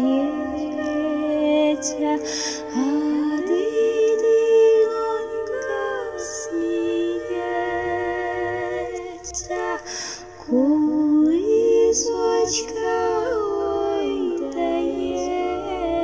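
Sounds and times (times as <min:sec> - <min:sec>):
breaths between phrases: 0:02.2 - 0:02.7.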